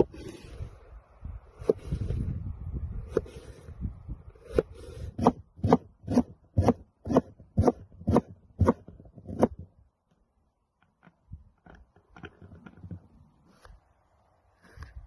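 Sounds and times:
cleaver chopping on wooden board: 4.5 - 9.6.

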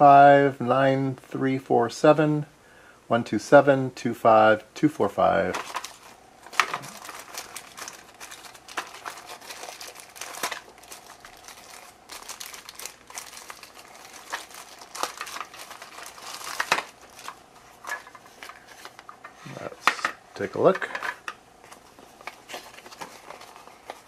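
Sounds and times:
plastic bag crinkling: 5.5 - 19.2, 20.5 - 24.0.

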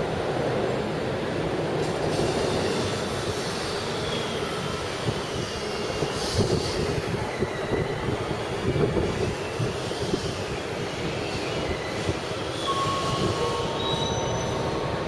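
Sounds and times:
train rumbling on rails: 0.0 - 15.0
wheel squeal: 9.1 - 15.0.

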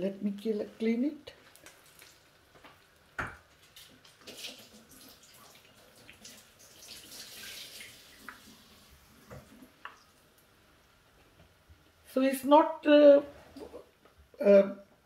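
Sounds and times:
oil sizzling and crackling: 0.0 - 12.0.

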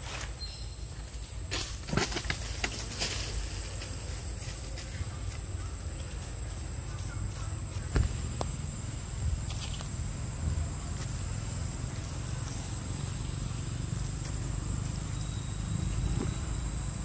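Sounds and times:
rustles and clicks: 0.0 - 8.6
high-pitched insect drone: 2.8 - 17.0.

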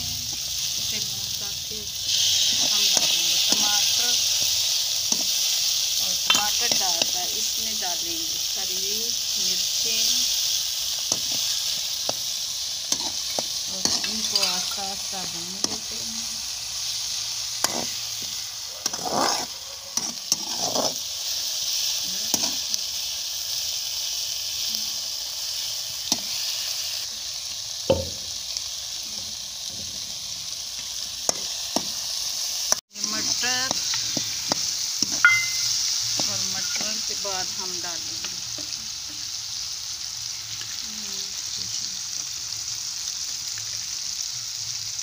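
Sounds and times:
food sizzling in oil: 0.0 - 45.0
metal spoon scraping a pan: 2.0 - 7.5, 11.0 - 15.9, 16.8 - 21.1, 22.3 - 22.7.

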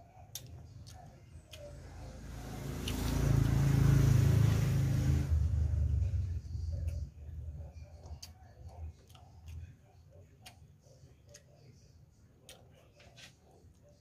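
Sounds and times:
road noise: 0.6 - 8.2
motor vehicle passing by: 1.3 - 7.3.

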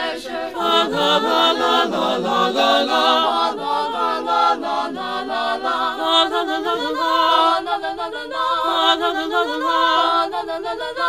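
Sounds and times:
choir singing a cappella: 0.0 - 11.0.

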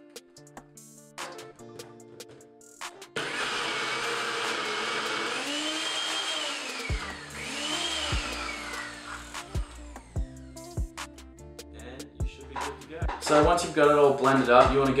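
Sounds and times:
background music with a beat: 0.0 - 3.2, 4.1 - 15.0
blender crushing ice: 3.2 - 9.8.

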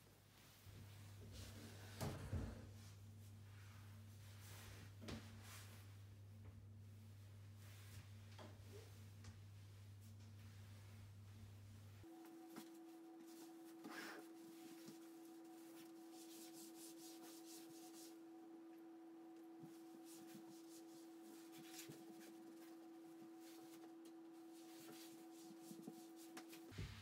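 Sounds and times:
steady humming tone: 0.4 - 27.0
cloth wiping wooden floor: 12.1 - 18.8, 19.4 - 27.0.

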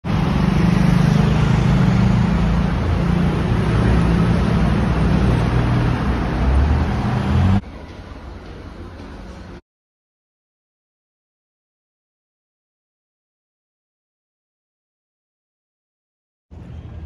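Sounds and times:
city traffic: 0.0 - 9.6, 16.5 - 17.0.

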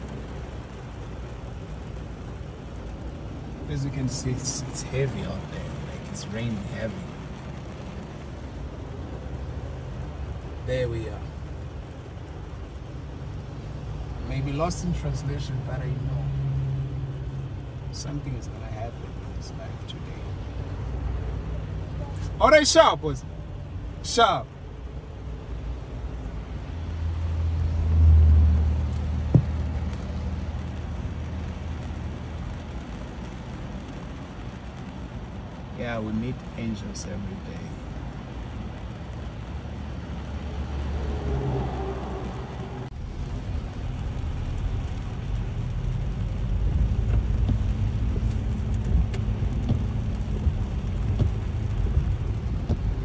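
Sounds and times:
car interior rumble: 0.0 - 53.0
light taps: 29.2 - 30.0
sharp knock: 29.4 - 29.6.

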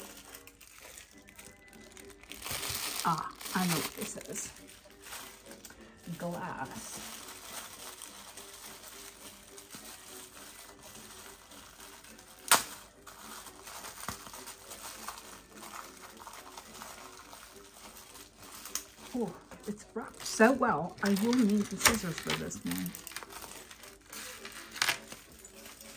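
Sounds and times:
wrapping rustling and crinkling: 0.0 - 25.9.

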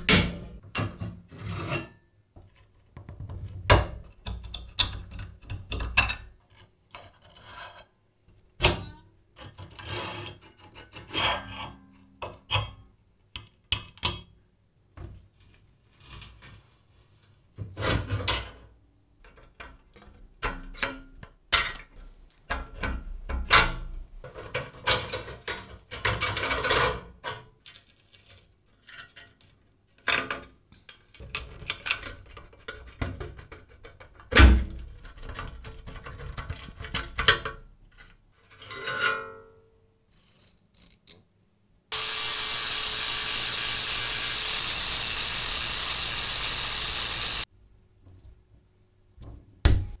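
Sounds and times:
grinding disc whining: 41.9 - 47.4.

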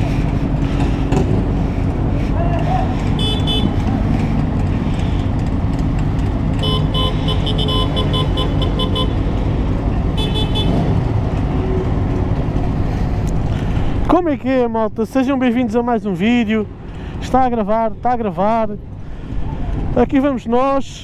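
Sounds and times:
motorcycle engine: 0.0 - 14.0
traffic rumble: 0.0 - 21.0
rapid horn toots: 3.1 - 3.9, 6.6 - 9.3, 10.1 - 11.0.

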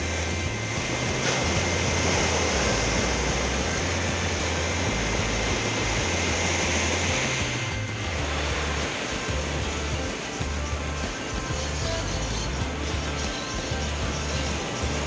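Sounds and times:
waves washing up beach: 0.0 - 11.4
background music with bass: 0.0 - 15.0.

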